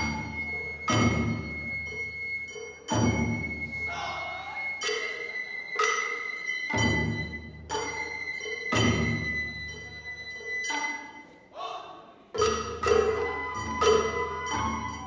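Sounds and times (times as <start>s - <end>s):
bamboo flute high note: 0.0s - 6.4s, 12.8s - 15.0s
drum strokes ringing: 0.0s - 11.2s, 12.4s - 15.0s.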